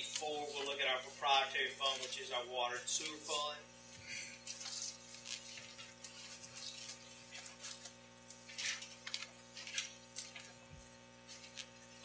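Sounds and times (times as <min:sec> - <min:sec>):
faint electrical hum: 0:00.0 - 0:12.0
paper pages rustling: 0:04.5 - 0:10.6.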